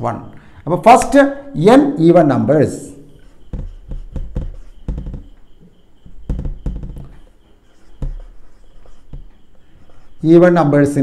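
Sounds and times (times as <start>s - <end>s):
marker pen writing on whiteboard: 2.7s - 11.0s
marker knocks against board: 3.5s - 5.4s, 6.3s - 7.3s, 8.0s - 8.4s.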